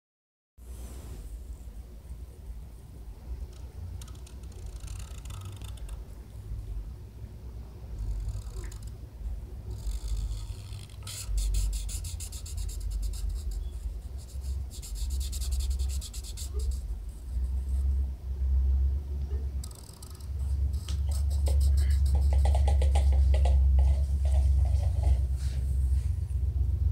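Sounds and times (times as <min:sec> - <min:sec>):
marker scratching on paper: 0:04.0 - 0:06.0, 0:08.0 - 0:09.0, 0:09.7 - 0:18.0, 0:19.6 - 0:25.6.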